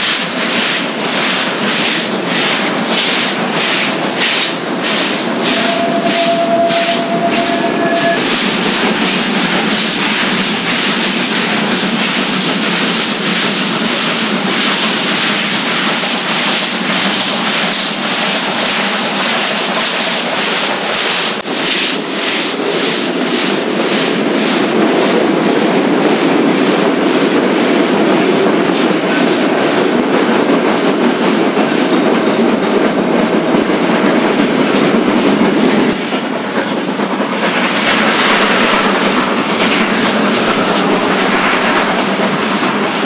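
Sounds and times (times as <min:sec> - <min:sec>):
steam locomotive exhaust beating: 0:00.0 - 0:43.0
train wheels rolling: 0:00.0 - 0:43.0.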